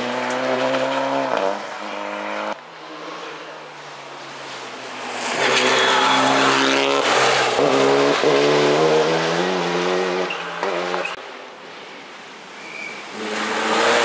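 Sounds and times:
rally car engine shifting gears: 0.0 - 3.3.

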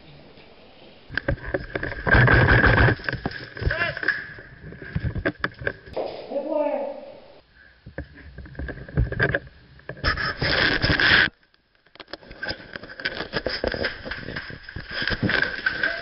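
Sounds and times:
muffled rubbing and knocking: 1.1 - 3.4.

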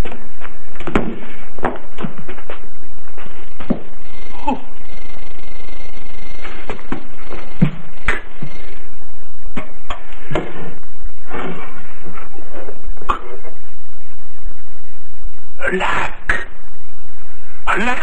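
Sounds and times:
film soundtrack hiss: 0.0 - 18.0.

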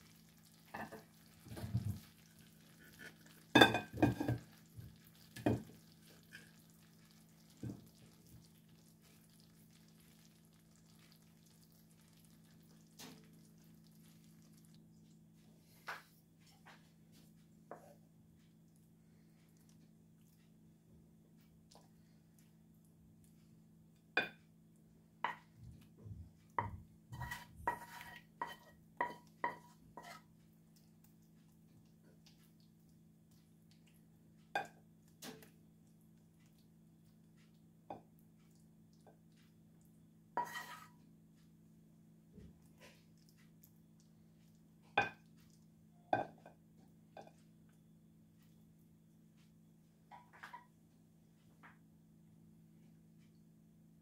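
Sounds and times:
wooden spoon knocking a pan: 3.5 - 5.8, 7.5 - 8.0, 25.3 - 25.5, 26.6 - 30.2.

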